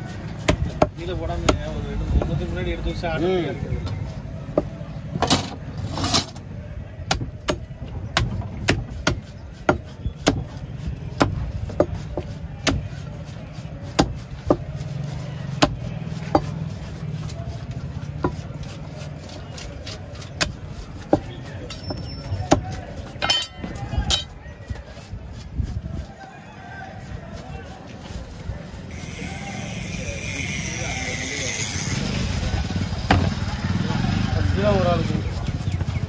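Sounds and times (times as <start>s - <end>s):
cleaver chopping on wooden block: 0.4s - 1.6s, 7.1s - 10.5s, 11.2s - 12.9s, 13.9s - 14.6s, 15.6s - 16.5s.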